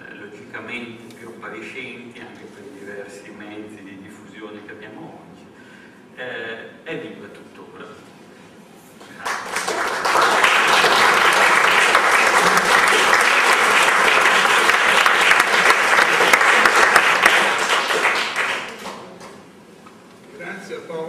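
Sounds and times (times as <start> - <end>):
audience applauding: 9.0 - 19.3.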